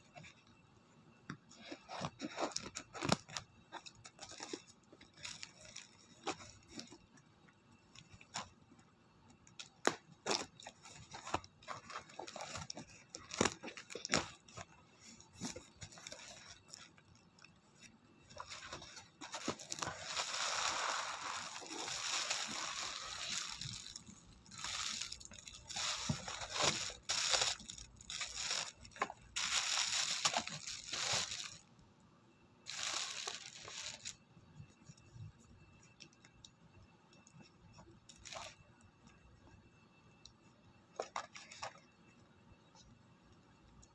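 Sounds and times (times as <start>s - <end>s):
packing material rustling and tearing: 1.6s - 7.0s, 9.8s - 17.0s, 18.3s - 31.6s, 32.7s - 34.2s, 38.1s - 38.6s.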